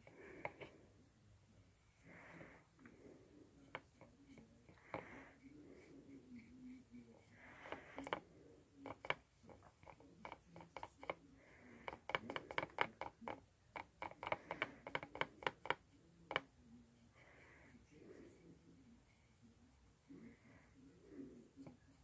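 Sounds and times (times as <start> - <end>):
paintbrush tapping on palette: 0.0 - 0.7, 7.6 - 8.2, 8.8 - 11.2, 11.8 - 16.5.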